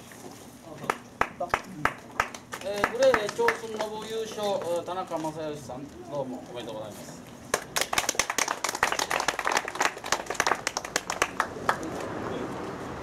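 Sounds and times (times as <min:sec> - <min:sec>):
people clapping: 0:00.8 - 0:04.8, 0:07.5 - 0:12.1.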